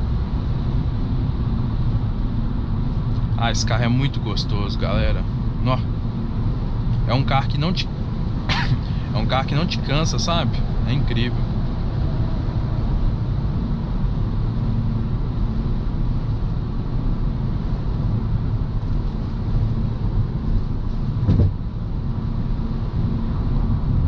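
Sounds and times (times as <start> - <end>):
car cabin road and engine noise: 0.0 - 24.0
brief thump: 21.2 - 21.6.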